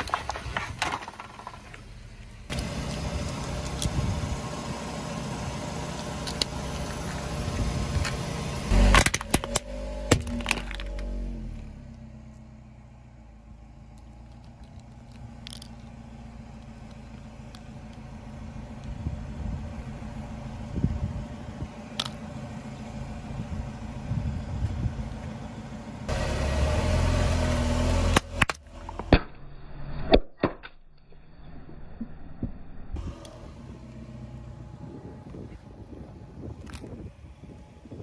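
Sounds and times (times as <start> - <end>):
car engine rumbling: 0.0 - 29.8, 31.1 - 38.0
plastic bottles crushed under tyre: 8.9 - 11.0.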